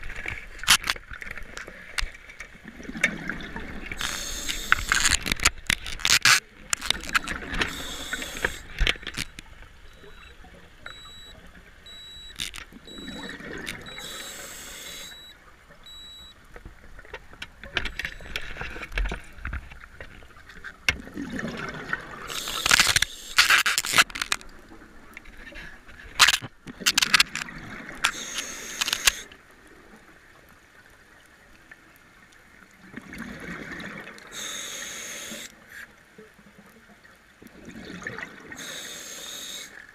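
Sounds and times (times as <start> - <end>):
regulator inhalation hiss: 4.0 - 5.0, 7.6 - 8.7, 13.9 - 15.3, 22.3 - 23.4, 28.1 - 29.3, 34.3 - 35.5, 38.6 - 39.8.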